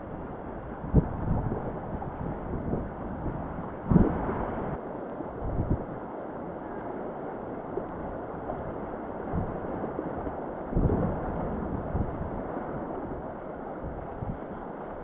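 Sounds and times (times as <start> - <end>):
wind buffeting microphone: 0.0 - 15.0
river water rushing: 4.2 - 15.0.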